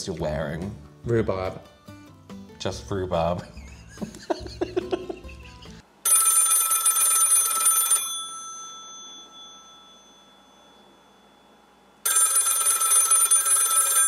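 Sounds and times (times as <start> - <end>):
telephone bell ringing: 6.0 - 14.0.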